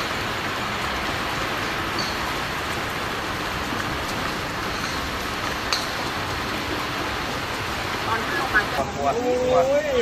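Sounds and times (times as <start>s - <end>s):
steady rain falling: 0.0s - 10.0s.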